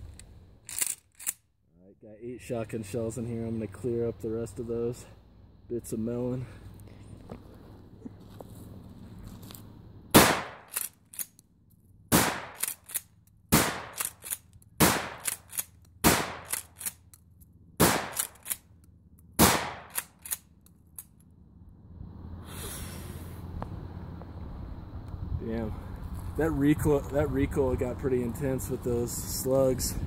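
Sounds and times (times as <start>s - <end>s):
shotgun pump clacks: 0.1s - 1.4s, 10.6s - 11.4s, 12.4s - 17.2s, 17.9s - 18.6s, 19.8s - 21.1s
shotgun shots: 10.1s - 10.8s, 12.1s - 12.9s, 13.5s - 16.8s, 17.8s - 18.5s, 19.4s - 20.2s.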